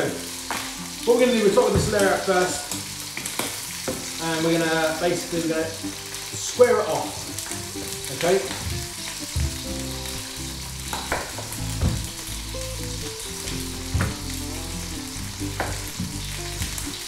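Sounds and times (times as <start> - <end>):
frying pan sizzling in oil: 0.0 - 17.0
knife knocking on wooden board: 8.6 - 9.8, 10.9 - 12.2, 14.0 - 14.2, 15.6 - 16.2.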